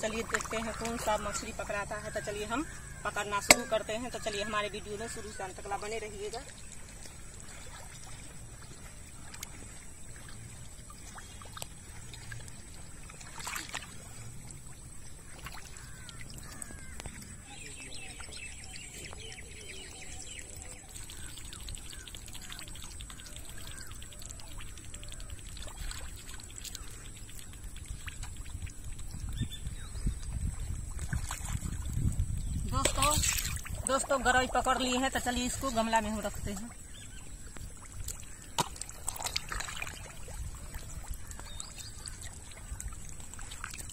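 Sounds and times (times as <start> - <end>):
birds chirping: 0.0 - 6.8, 15.1 - 25.4, 39.8 - 43.0
hands splashing in water: 13.2 - 14.0, 32.7 - 33.8, 38.0 - 40.3.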